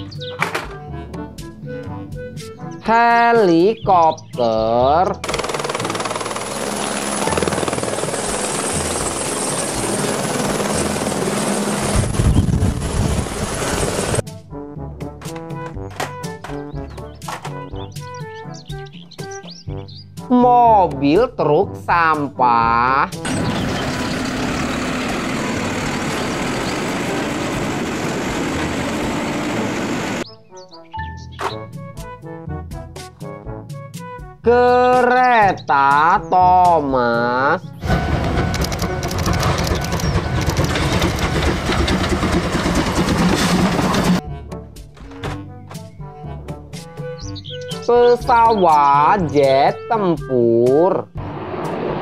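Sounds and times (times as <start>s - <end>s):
music: 0.0s - 23.6s, 26.5s - 42.2s, 43.3s - 52.0s
helicopter rotor chop: 5.2s - 14.2s, 23.1s - 30.2s, 37.8s - 44.2s
high turbine whine: 5.9s - 14.2s, 23.2s - 30.2s
garbage truck diesel engine: 23.2s - 30.2s, 37.8s - 44.3s
hydraulic arm working: 23.2s - 30.2s, 37.8s - 44.2s.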